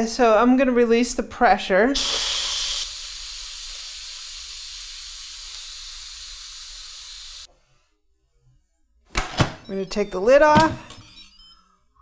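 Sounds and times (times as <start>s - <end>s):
pressure cooker steam hissing: 2.0s - 7.5s.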